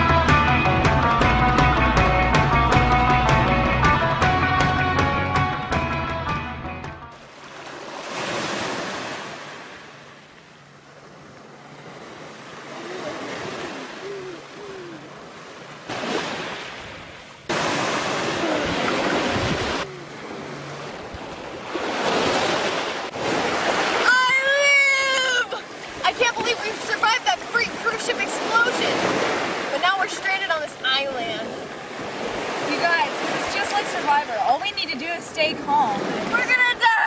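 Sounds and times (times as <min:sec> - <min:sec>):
ocean surf washing on beach: 0:07.2 - 0:37.0
wind on microphone: 0:16.0 - 0:24.4.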